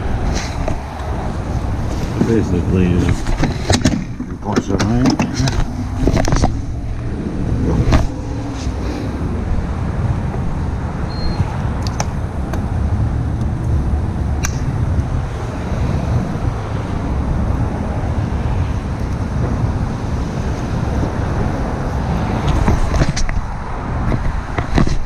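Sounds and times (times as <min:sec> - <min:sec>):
heavy wind rush: 0:00.0 - 0:25.0
road noise: 0:00.0 - 0:25.0
motorcycle engine: 0:05.5 - 0:11.0.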